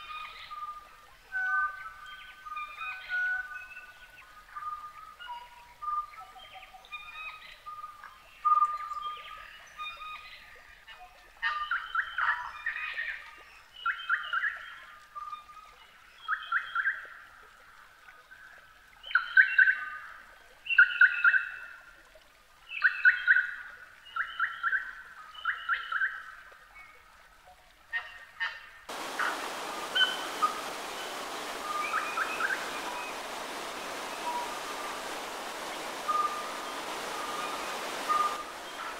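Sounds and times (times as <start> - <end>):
songbird singing: 0.0 - 17.0, 28.9 - 38.9
waterfall rushing: 28.9 - 38.9.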